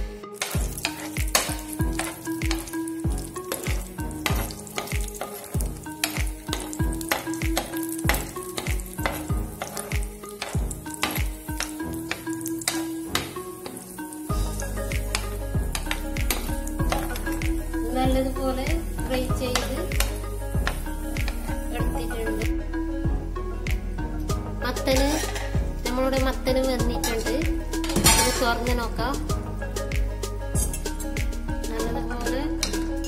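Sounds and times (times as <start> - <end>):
nuts sizzling in oil: 0.0 - 22.6.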